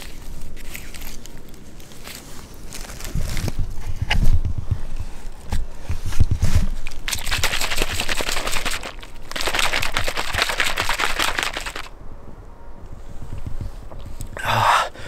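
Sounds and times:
bottle shaken with liquid sloshing: 0:06.6 - 0:11.9.

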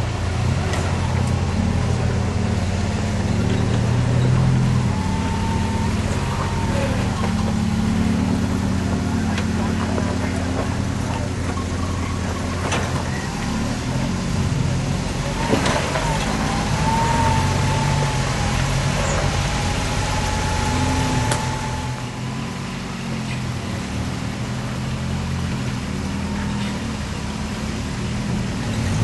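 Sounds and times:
truck engines running: 0:00.0 - 0:29.0
thin wavering whine: 0:00.6 - 0:23.6.

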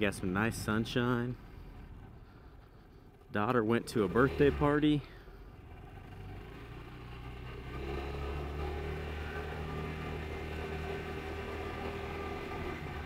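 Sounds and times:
scooter engine running: 0:03.8 - 0:13.0.

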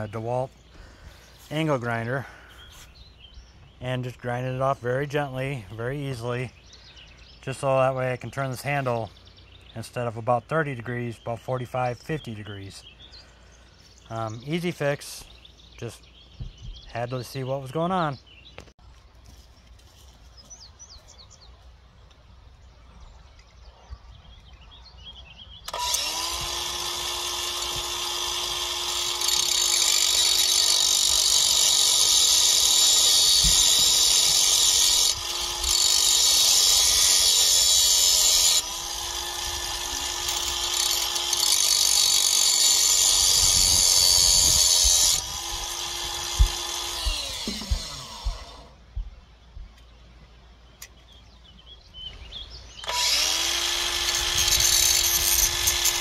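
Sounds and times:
angle grinder grinding metal: 0:25.7 - 0:48.7, 0:52.8 - 0:56.0.

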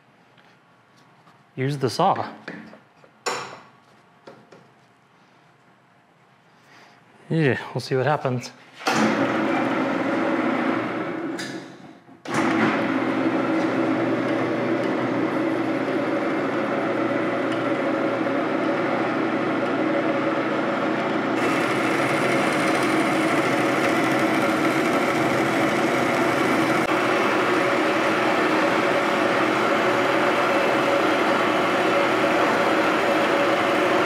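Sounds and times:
bandsaw sawing through metal: 0:21.4 - 0:26.9.

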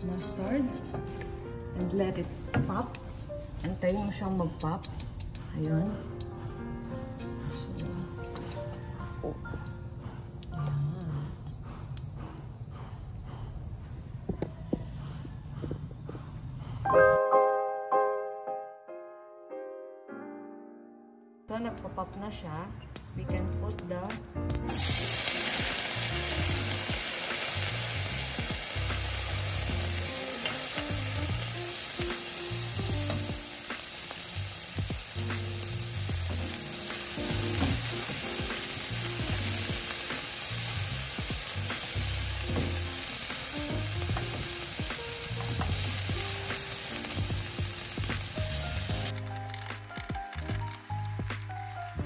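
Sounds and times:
potatoes sizzling in hot oil: 0:24.6 - 0:51.5
mustard seeds popping: 0:48.0 - 0:51.8.

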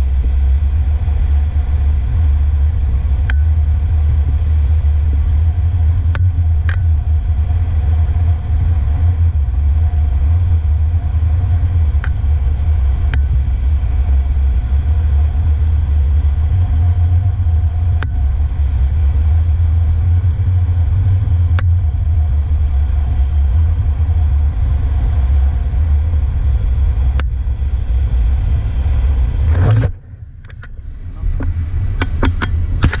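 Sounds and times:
wind and road noise: 0:00.0 - 0:33.0
camera clicks and rubbing: 0:29.5 - 0:30.7, 0:32.0 - 0:33.0.

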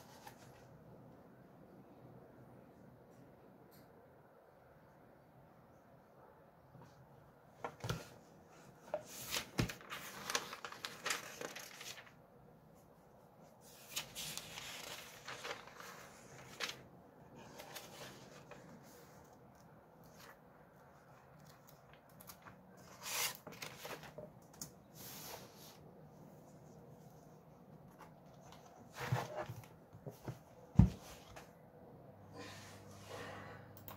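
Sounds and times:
book pages rustling: 0:00.0 - 0:00.8, 0:07.6 - 0:12.2, 0:13.4 - 0:24.4, 0:27.0 - 0:31.5.

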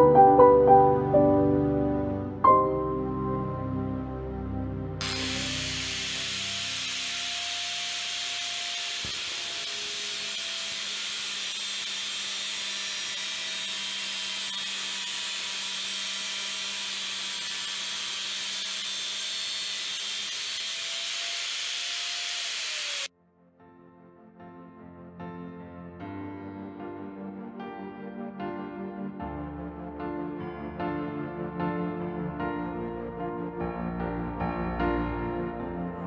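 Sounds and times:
angle grinder grinding steel: 0:05.0 - 0:23.1.

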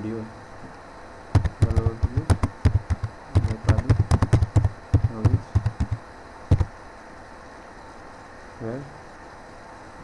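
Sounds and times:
typing on a keyboard: 0:01.4 - 0:06.7.

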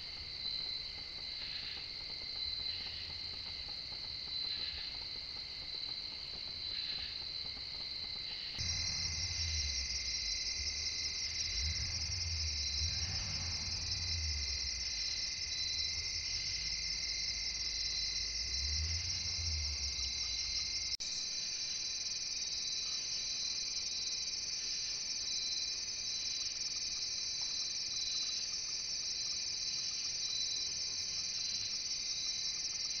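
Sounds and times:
crickets and insects trilling: 0:00.0 - 0:33.0
low rumble: 0:08.6 - 0:21.0.

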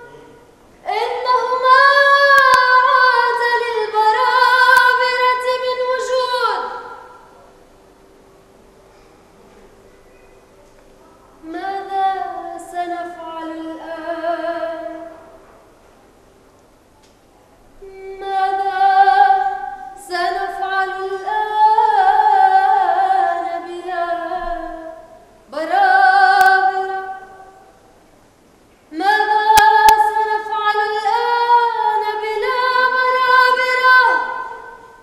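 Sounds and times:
woman singing unaccompanied: 0:00.0 - 0:07.2, 0:11.4 - 0:15.2, 0:17.8 - 0:27.8, 0:28.9 - 0:35.0.

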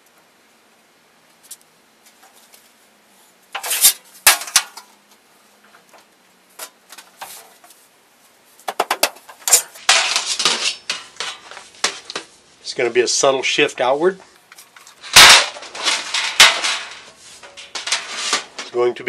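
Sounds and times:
sheet metal clanking: 0:03.6 - 0:04.9, 0:08.8 - 0:12.2, 0:15.0 - 0:18.9.

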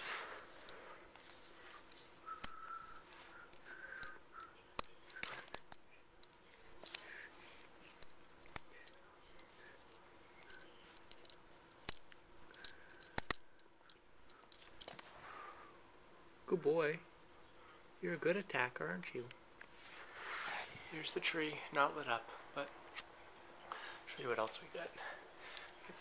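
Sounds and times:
belt buckle clicking and jingling: 0:00.7 - 0:07.0, 0:07.9 - 0:15.0.

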